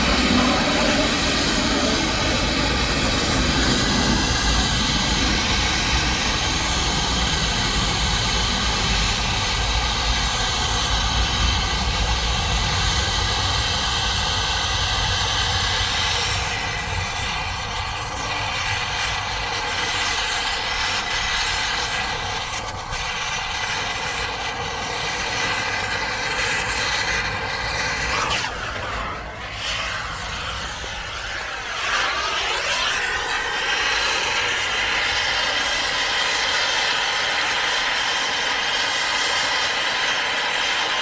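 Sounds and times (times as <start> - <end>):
machine drone with high whine: 0.0 - 41.0.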